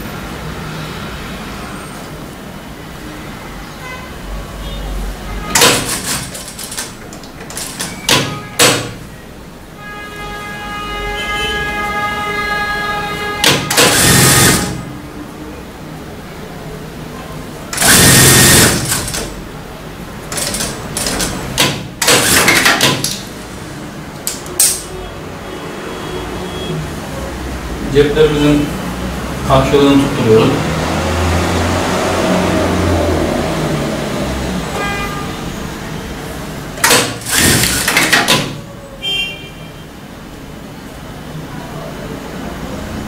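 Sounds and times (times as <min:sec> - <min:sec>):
sewing machine stitching: 0:05.5 - 0:09.0, 0:13.4 - 0:14.9, 0:17.7 - 0:19.4, 0:20.3 - 0:23.3, 0:36.8 - 0:38.7.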